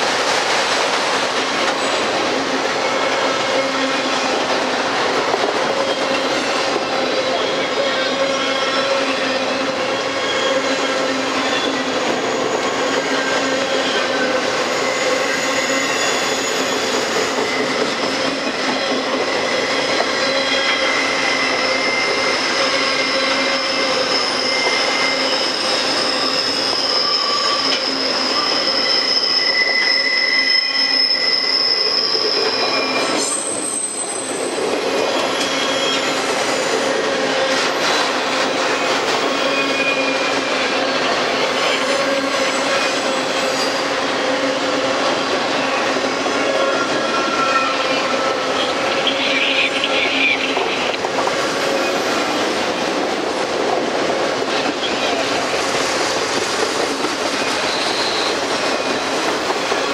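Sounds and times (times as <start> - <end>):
train wheels rumbling on rails: 0.0 - 59.9
high-pitched wheel squeals: 7.3 - 37.4, 38.7 - 44.0, 57.3 - 59.9.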